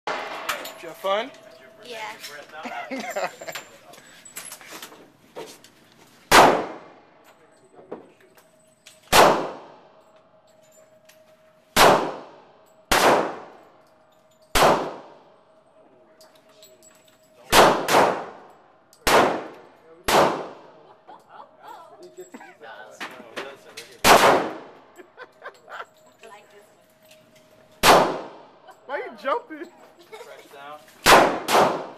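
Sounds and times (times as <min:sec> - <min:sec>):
pistol shots indoors: 0:06.3 - 0:07.1, 0:08.8 - 0:10.7, 0:11.7 - 0:15.6, 0:17.5 - 0:20.8, 0:24.0 - 0:24.8, 0:27.8 - 0:28.6, 0:31.0 - 0:31.9.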